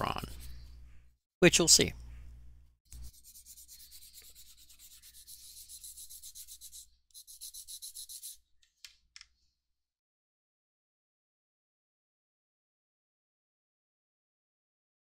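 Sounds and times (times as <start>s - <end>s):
sandpaper rubbing: 3.0s - 8.4s.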